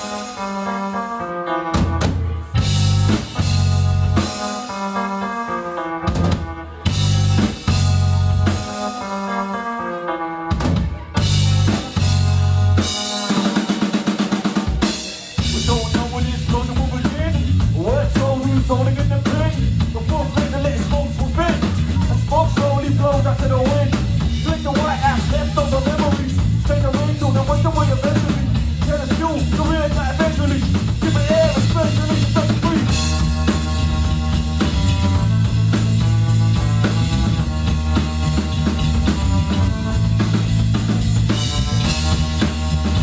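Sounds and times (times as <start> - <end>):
live band playing: 0.0 - 43.0
rapid drum fill: 10.6 - 43.0.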